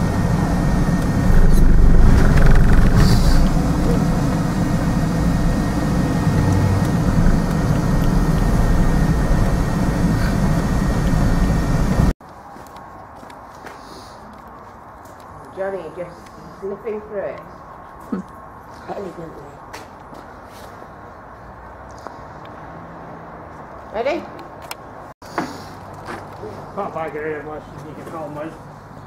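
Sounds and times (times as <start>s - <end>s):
car engine and road rumble: 0.0s - 12.2s.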